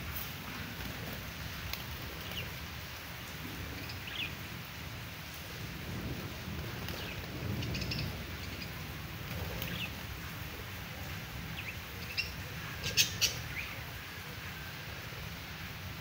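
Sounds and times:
budgerigars chirping: 11.6 - 13.8.

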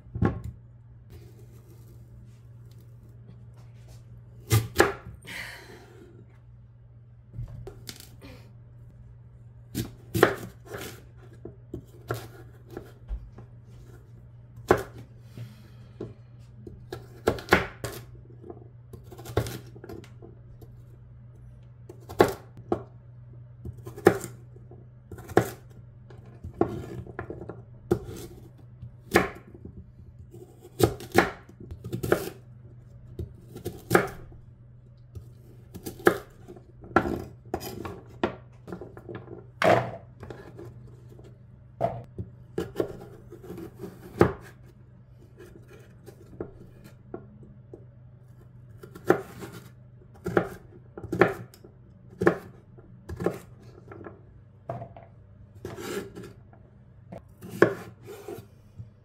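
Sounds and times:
knife chopping on wooden board: 9.7 - 13.2, 14.6 - 15.0, 16.9 - 18.1, 26.5 - 29.5, 30.3 - 32.4, 33.2 - 34.2, 41.8 - 44.7, 48.8 - 51.6, 52.2 - 53.5, 55.6 - 56.3, 57.1 - 58.4.

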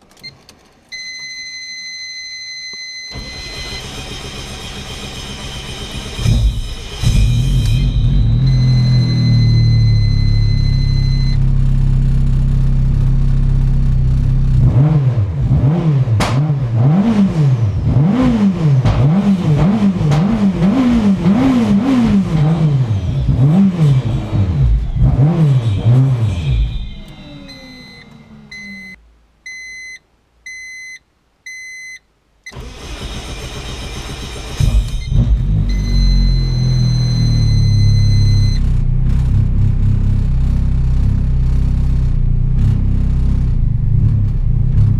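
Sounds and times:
car engine revving: 3.3 - 28.9, 32.5 - 44.9
chime beeping: 25.8 - 29.0.

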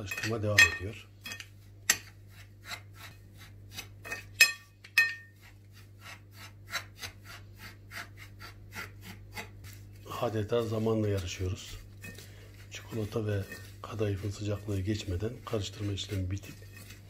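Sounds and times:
clinks against glass: 4.4 - 5.3.

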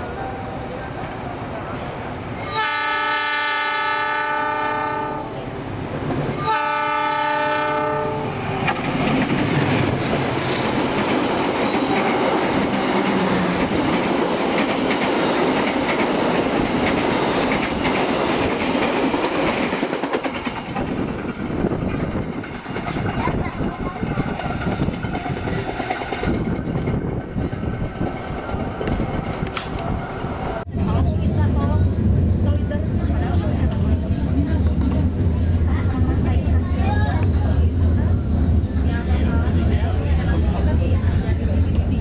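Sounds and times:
train passing with rushing clatter: 0.0 - 42.0
locomotive horn blasts: 2.4 - 5.4, 6.3 - 8.4.

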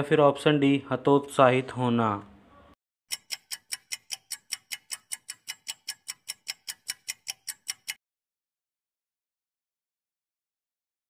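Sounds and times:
fast clock-like ticking: 3.1 - 8.0.

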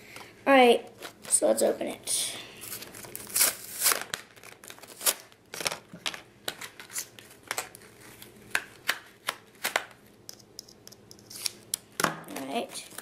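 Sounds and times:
plastic packaging crinkling: 2.6 - 8.8.

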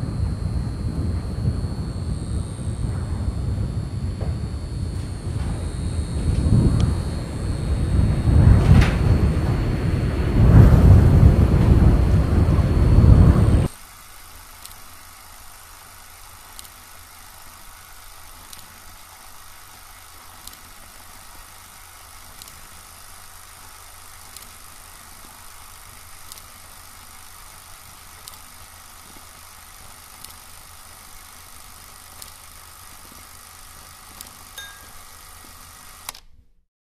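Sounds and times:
loud dense rumbling: 0.0 - 13.7
quiet steady hum: 0.0 - 36.6.

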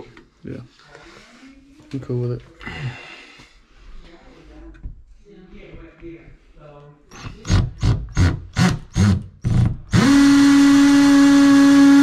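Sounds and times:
cordless drill running: 7.1 - 12.0.

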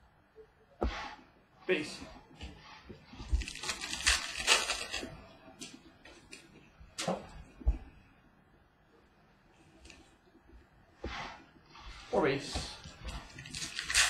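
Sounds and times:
trading cards rustling and clicking: 3.2 - 6.4, 13.1 - 14.0.

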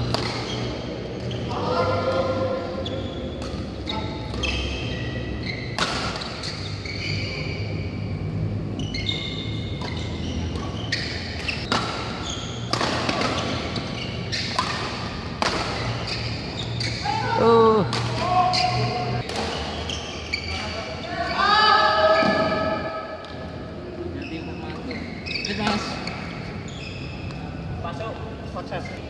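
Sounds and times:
racket hitting shuttlecock: 0.0 - 0.7, 5.7 - 6.7, 9.7 - 17.0, 17.9 - 19.8
shoes squeaking on court: 0.0 - 1.6, 2.7 - 17.4, 18.4 - 21.4, 24.1 - 27.7, 28.7 - 29.0.

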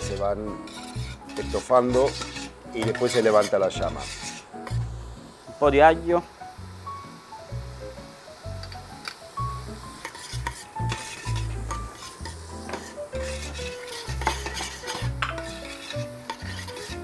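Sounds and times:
metal spoon scraping a pot: 0.0 - 4.8, 10.0 - 17.0
vegetables sizzling in oil: 0.0 - 17.0.

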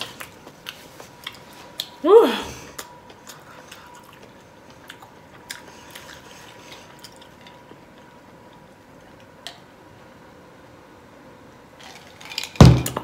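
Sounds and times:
person chewing: 0.0 - 2.0, 2.7 - 8.6
faint steady hum: 0.0 - 13.0.

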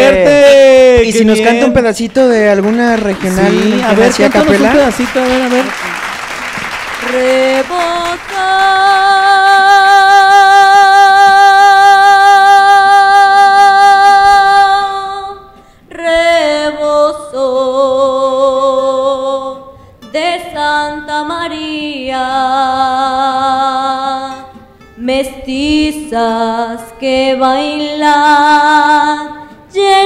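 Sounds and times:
woman singing: 7.0 - 30.0.

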